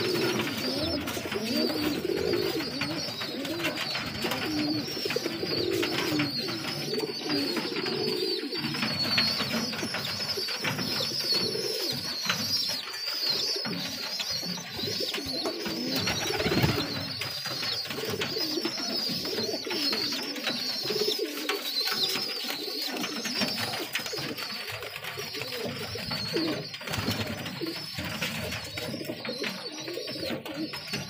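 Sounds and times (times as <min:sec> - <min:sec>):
pigeons cooing: 0:00.0 - 0:31.0
wing flaps and rustling: 0:15.2 - 0:17.0.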